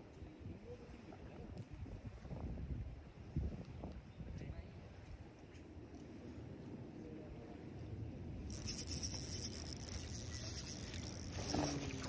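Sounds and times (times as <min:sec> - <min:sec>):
fishing reel whirring: 0:08.5 - 0:12.0
water splashing: 0:08.5 - 0:12.0.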